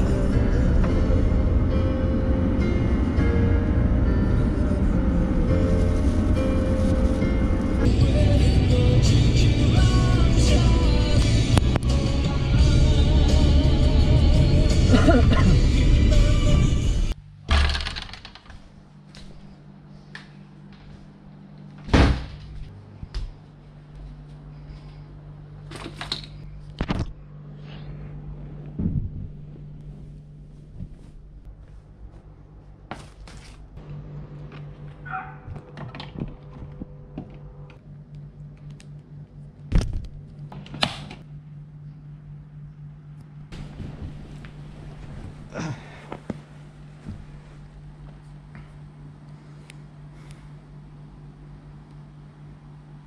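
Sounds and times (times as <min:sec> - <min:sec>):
music: 0:00.0 - 0:17.2
low steady room hum: 0:17.1 - 0:53.0.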